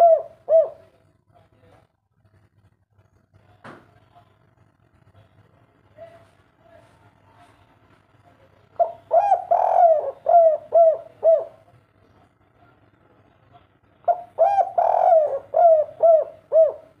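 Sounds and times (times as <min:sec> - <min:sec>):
dove cooing: 0:00.0 - 0:01.0, 0:08.8 - 0:11.7, 0:14.1 - 0:17.0.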